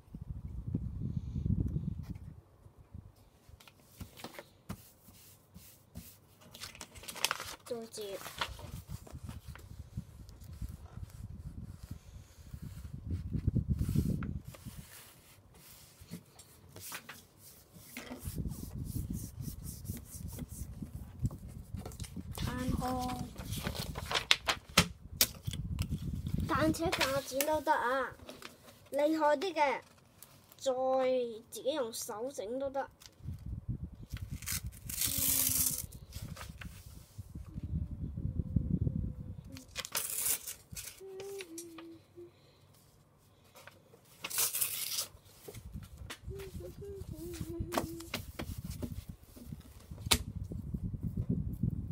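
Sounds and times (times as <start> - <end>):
paper rustling and crinkling: 3.6 - 9.7, 10.4 - 18.7, 19.7 - 30.7, 34.1 - 37.1, 39.5 - 41.9, 43.5 - 50.2
paper rubbing and sliding: 10.4 - 21.0, 22.0 - 24.4, 26.2 - 27.7, 34.3 - 37.3
sharp paper snaps: 21.9 - 26.0, 34.2 - 35.9, 39.5 - 41.8, 50.0 - 50.3.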